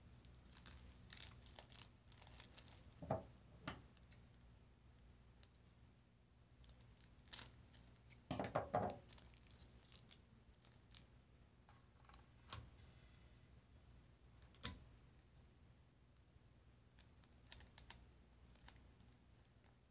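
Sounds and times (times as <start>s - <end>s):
foil packets clattering and crinkling: 0.5s - 3.0s, 9.0s - 10.8s.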